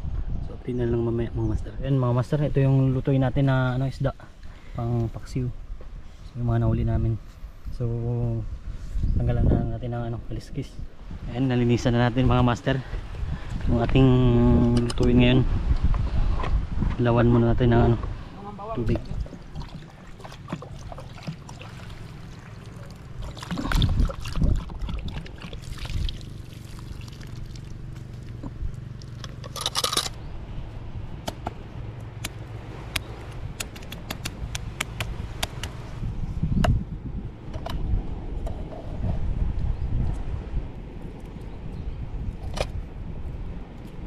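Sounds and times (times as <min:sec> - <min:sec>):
small clicks and taps: 0:32.2 - 0:35.8.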